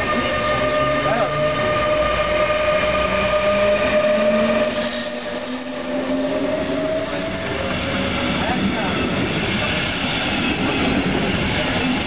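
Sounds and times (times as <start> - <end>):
electric train passing: 0.0 - 12.0
high thin squeal: 4.0 - 7.6.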